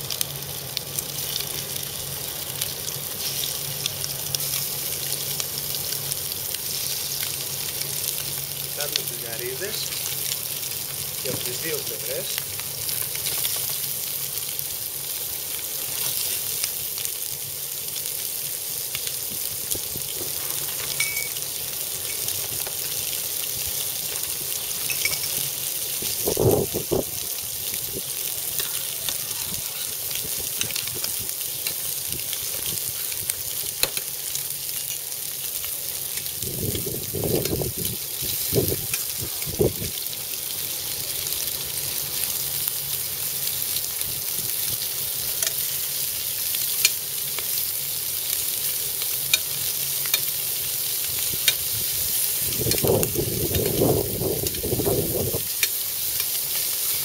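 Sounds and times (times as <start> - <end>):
shrimp sizzling in frying pan: 0.0 - 57.0.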